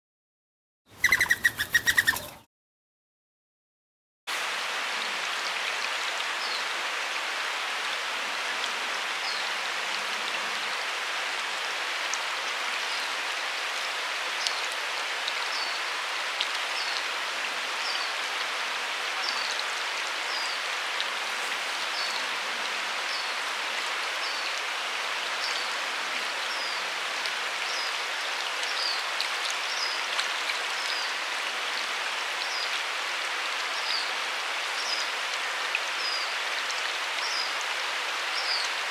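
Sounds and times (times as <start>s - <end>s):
small bird calling: 0.9s - 2.4s
flowing river water: 4.3s - 38.9s.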